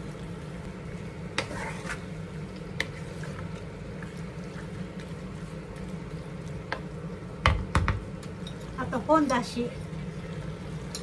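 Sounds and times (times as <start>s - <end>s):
stir-fry sizzling in frying pan: 0.0s - 11.0s
spatula stirring: 0.6s - 7.2s.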